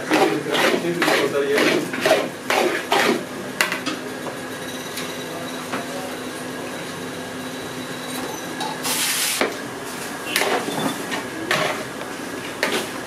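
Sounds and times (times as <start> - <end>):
metal scraper scraping pan: 0.0 - 3.2.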